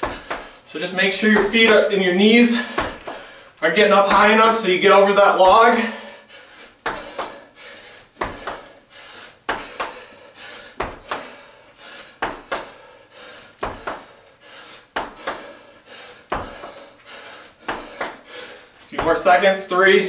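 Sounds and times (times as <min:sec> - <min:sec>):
feet landing on hard floor: 0:00.0 - 0:00.6, 0:01.2 - 0:01.9, 0:02.5 - 0:03.4, 0:04.0 - 0:04.4, 0:06.8 - 0:07.4, 0:08.1 - 0:08.8, 0:09.4 - 0:10.0, 0:10.8 - 0:11.4, 0:12.2 - 0:12.8, 0:13.6 - 0:14.2, 0:14.9 - 0:15.6, 0:16.3 - 0:19.4.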